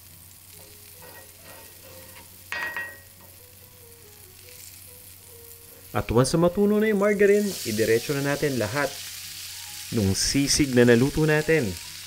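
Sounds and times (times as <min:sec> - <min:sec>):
margarine sizzling on hot plate: 0:00.0 - 0:12.0
wooden spatula scraping plate: 0:01.0 - 0:02.3.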